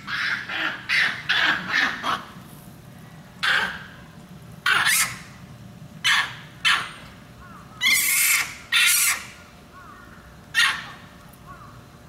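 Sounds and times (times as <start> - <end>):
loud harsh animal calls: 0.0 - 2.4, 3.4 - 4.0, 4.6 - 5.2, 6.0 - 11.0.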